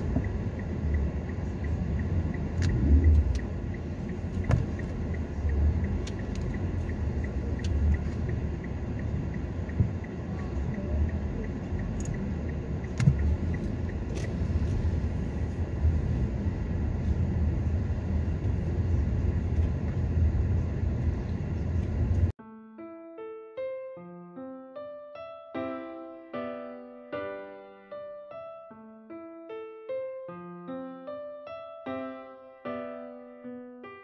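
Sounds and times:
car driving slowly: 0:00.0 - 0:22.4.

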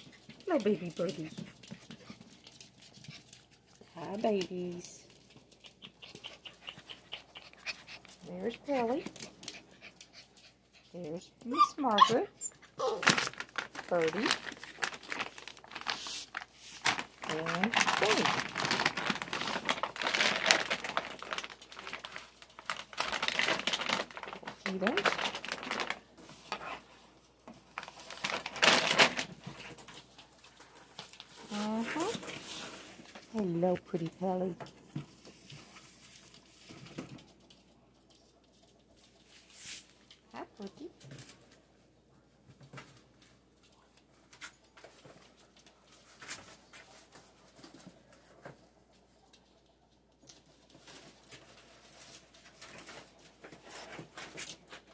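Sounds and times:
puppies scrabbling and rustling: 0:00.0 - 0:40.3, 0:40.9 - 0:54.9.

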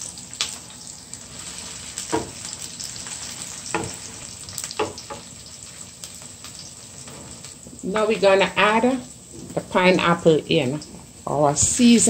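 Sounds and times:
onion sizzling in hot oil: 0:00.0 - 0:12.0
utensil knocking against pan: 0:03.7 - 0:04.0.

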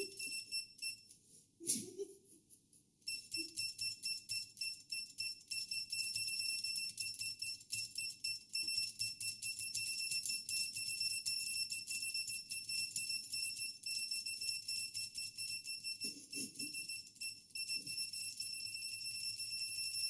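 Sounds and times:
high-pitched keypress beeps: 0:00.0 - 0:01.1, 0:03.1 - 0:20.0.

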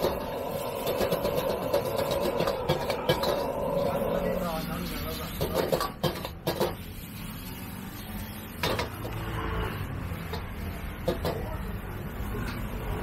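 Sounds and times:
gas burner roaring: 0:00.0 - 0:13.0.

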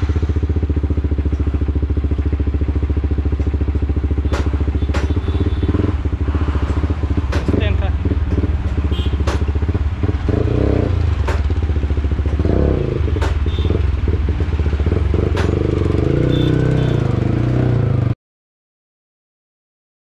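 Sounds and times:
motorcycle engine revving: 0:00.0 - 0:18.2.

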